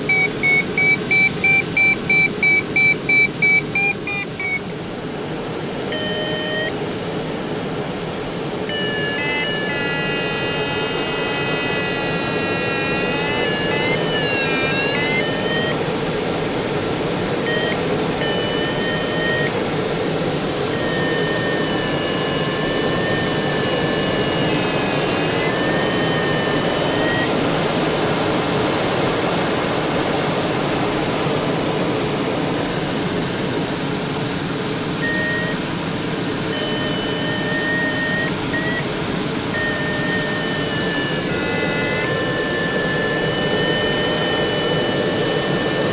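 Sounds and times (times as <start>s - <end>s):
wavering electronic tone: 0.0s - 4.6s, 5.9s - 6.7s, 8.7s - 15.8s, 17.4s - 27.8s, 35.0s - 35.6s, 36.5s - 45.9s.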